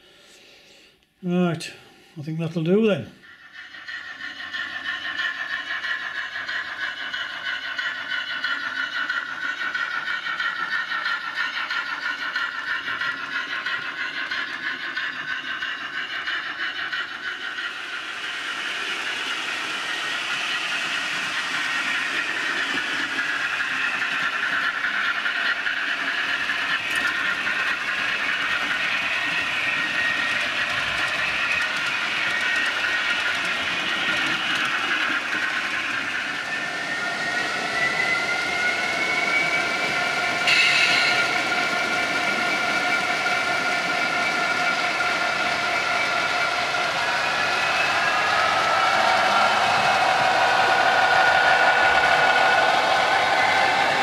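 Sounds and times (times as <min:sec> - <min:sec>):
model train motor whine: 0:03.2 - 0:54.0
wheels rumbling on rail: 0:03.2 - 0:54.0.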